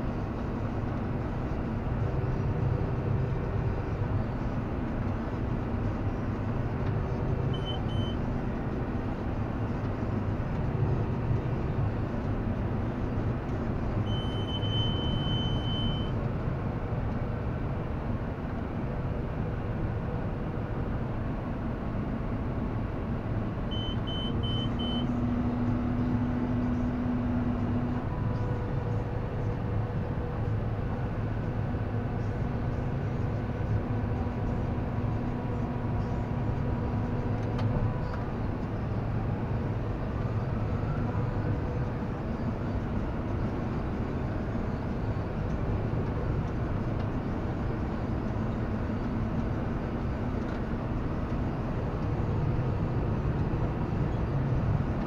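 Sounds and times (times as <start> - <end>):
tractor engine drone: 0.0 - 55.0
short high beeps: 7.6 - 8.2, 14.1 - 16.1, 23.7 - 25.1.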